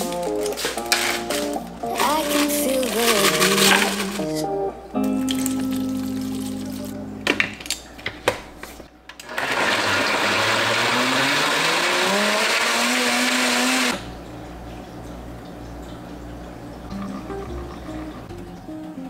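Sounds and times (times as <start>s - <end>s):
blender running: 9.2s - 14.0s.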